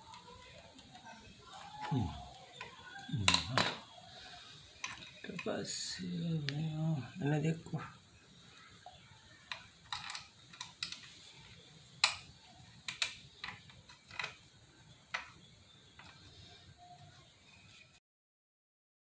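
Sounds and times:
small metal parts clicking: 0:04.8 - 0:05.5, 0:09.5 - 0:15.4.

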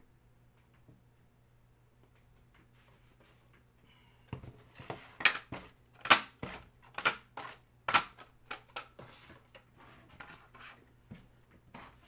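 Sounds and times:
plastic packaging clicks and snaps: 0:05.2 - 0:08.9.

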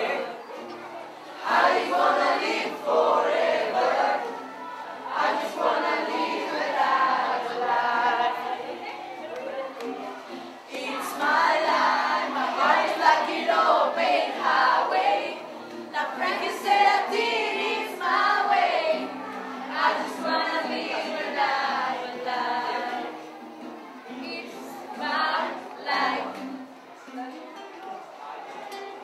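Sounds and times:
girls singing together: 0:00.0 - 0:27.4.

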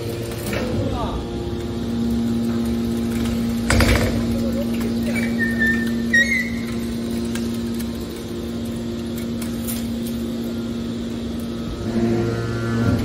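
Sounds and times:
hydraulic power unit humming: 0:00.0 - 0:13.0
high squeak: 0:05.1 - 0:06.8.

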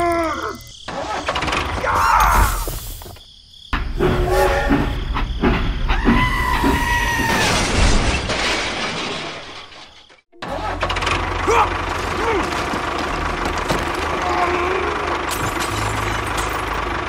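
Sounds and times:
steady horn-like tone: 0:04.0 - 0:05.0
crashing and shattering: 0:07.0 - 0:14.5, 0:15.1 - 0:17.0.

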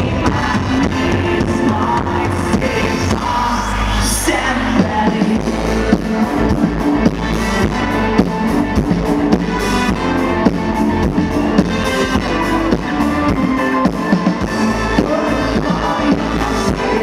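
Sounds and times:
electric guitars: 0:00.0 - 0:17.0
drum-kit beat: 0:04.8 - 0:16.5.

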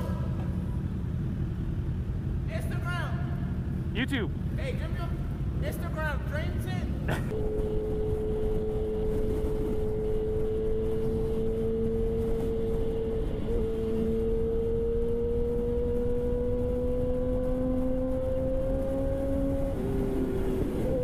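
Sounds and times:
motorcycle engine at speed: 0:07.3 - 0:21.0
wind rushing over microphone: 0:07.3 - 0:21.0.

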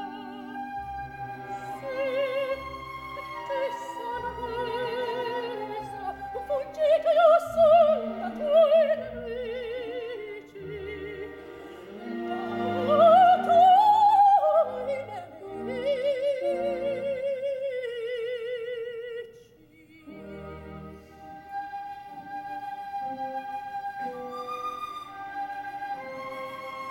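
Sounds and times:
orchestra accompanying: 0:00.0 - 0:17.2, 0:20.0 - 0:26.9
operatic soprano singing: 0:00.0 - 0:26.9.

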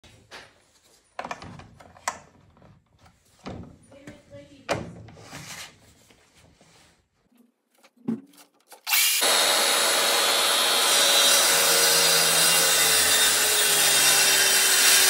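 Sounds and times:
track saw cutting wood: 0:08.9 - 0:15.0.

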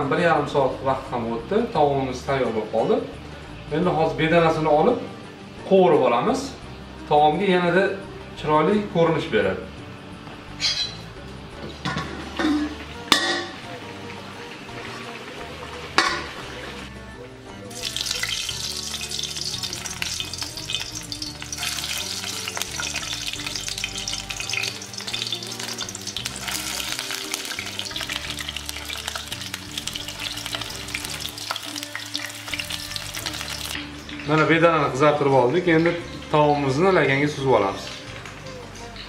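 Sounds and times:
quail sizzling in hot oil: 0:10.4 - 0:16.9, 0:17.7 - 0:38.5.

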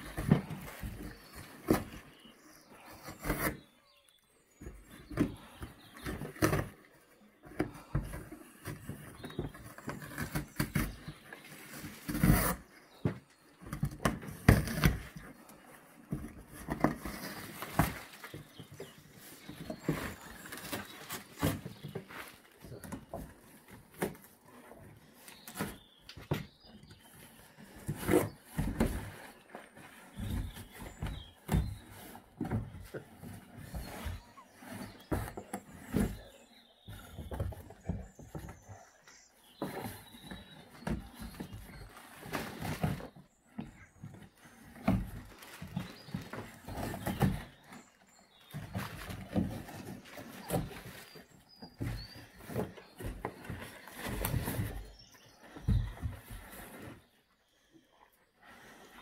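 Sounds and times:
dog pushing cardboard box: 0:04.6 - 0:15.5, 0:16.1 - 0:38.8
dog tearing cardboard: 0:11.8 - 0:12.7.

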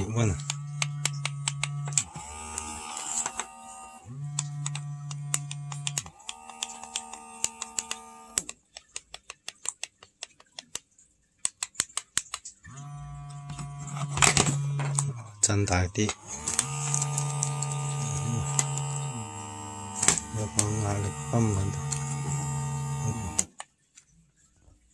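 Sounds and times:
massager motor humming: 0:00.0 - 0:08.5, 0:12.7 - 0:23.5.

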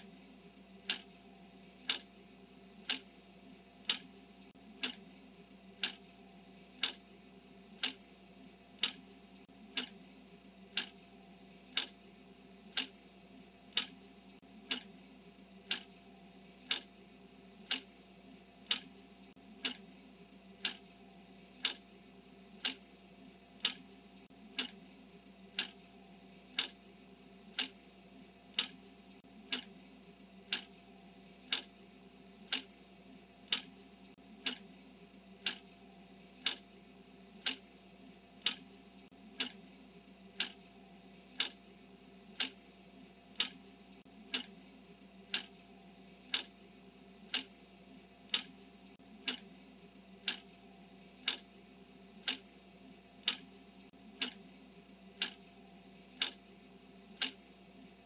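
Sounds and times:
clock ticking: 0:00.8 - 0:01.1, 0:01.8 - 0:02.2, 0:02.8 - 0:03.2, 0:03.8 - 0:05.1, 0:05.8 - 0:06.1, 0:06.8 - 0:07.1, 0:07.7 - 0:08.1, 0:08.7 - 0:10.0, 0:10.7 - 0:11.0, 0:11.7 - 0:12.0, 0:12.7 - 0:13.1, 0:13.7 - 0:15.0, 0:15.6 - 0:16.0, 0:16.6 - 0:17.0, 0:17.6 - 0:18.0, 0:18.6 - 0:19.9, 0:20.6 - 0:20.9, 0:21.6 - 0:21.9, 0:22.6 - 0:22.9, 0:23.6 - 0:24.9, 0:25.5 - 0:25.8, 0:26.5 - 0:26.8, 0:27.5 - 0:27.8, 0:28.5 - 0:29.8, 0:30.4 - 0:30.8, 0:31.4 - 0:31.7, 0:32.4 - 0:32.8, 0:33.4 - 0:34.7, 0:35.4 - 0:35.7, 0:36.4 - 0:36.7, 0:37.4 - 0:37.7, 0:38.4 - 0:39.6, 0:40.3 - 0:40.6, 0:41.3 - 0:41.6, 0:42.3 - 0:42.7, 0:43.3 - 0:44.6, 0:45.2 - 0:45.6, 0:46.2 - 0:46.6, 0:47.2 - 0:47.6, 0:48.2 - 0:49.5, 0:50.2 - 0:51.5, 0:52.2 - 0:52.6, 0:53.2 - 0:54.5, 0:55.1 - 0:55.5, 0:56.1 - 0:56.4, 0:57.1 - 0:57.6.

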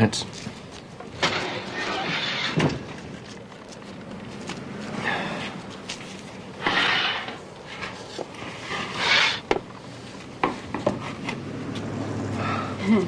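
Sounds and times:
wooden peel scraping oven deck: 0:01.1 - 0:02.9, 0:06.6 - 0:09.6.

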